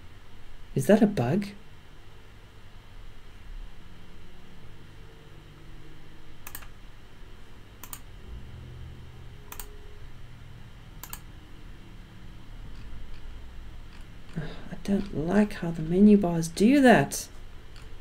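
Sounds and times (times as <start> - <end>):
faint low hum: 0.0 - 18.0
keyboard or mouse clicks: 6.4 - 6.7, 7.8 - 8.1, 9.5 - 9.7, 11.0 - 11.3.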